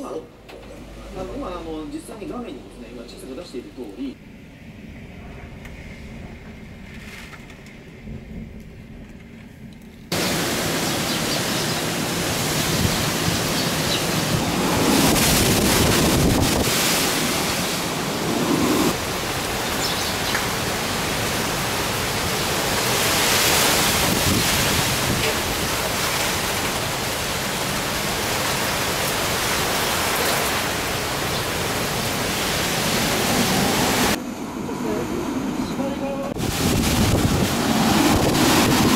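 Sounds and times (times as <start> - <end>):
strong wind: 4.2 - 38.9
heavy rain: 10.1 - 34.2, 35.8 - 38.9.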